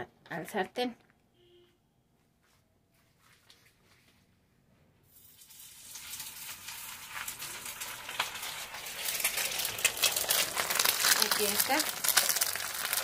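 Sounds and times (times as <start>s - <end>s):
food frying in hot oil: 5.1s - 13.0s.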